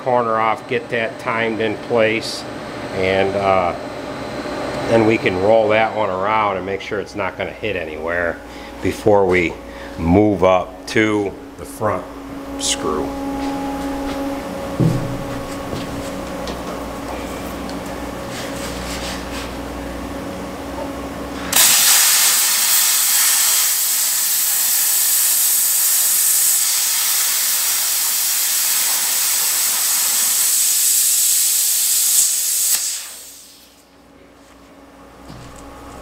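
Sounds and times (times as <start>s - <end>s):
machine hum: 0.0s - 21.5s, 33.7s - 36.0s
plasma cutter hissing: 21.5s - 33.8s.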